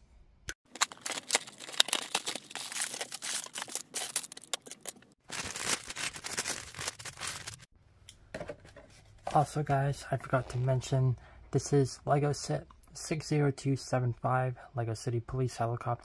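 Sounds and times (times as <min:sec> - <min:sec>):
plastic bags crinkling and tearing: 0:00.7 - 0:07.7.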